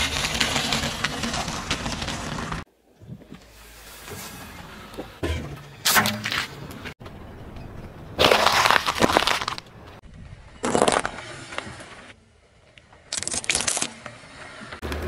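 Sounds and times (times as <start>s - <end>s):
tyre crushing objects: 8.2s - 9.6s.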